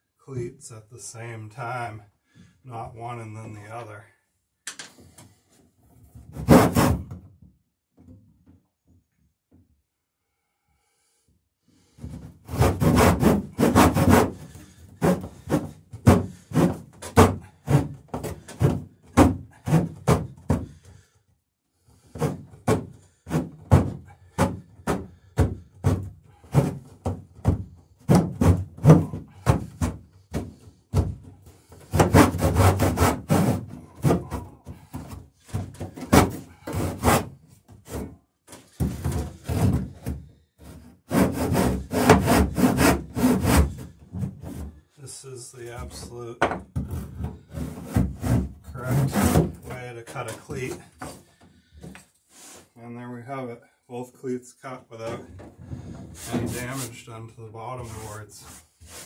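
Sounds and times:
handsaw cutting wood: 6.4 - 7.1, 12.4 - 20.8, 22.0 - 26.9, 31.6 - 44.6, 46.9 - 49.8, 56.2 - 56.9, 57.8 - 59.0.

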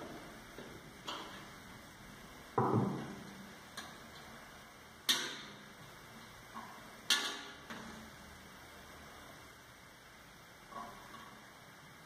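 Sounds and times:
clicks and knocks on sheet metal: 5.1 - 5.5.

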